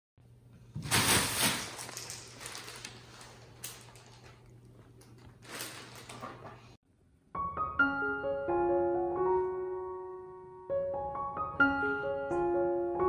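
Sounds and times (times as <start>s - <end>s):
plastic bag crinkling and rustling: 0.8s - 6.8s.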